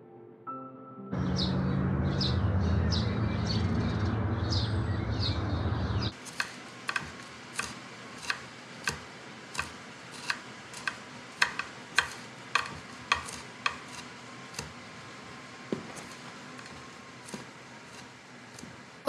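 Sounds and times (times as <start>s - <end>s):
knife chopping on wooden board: 6.2s - 18.8s.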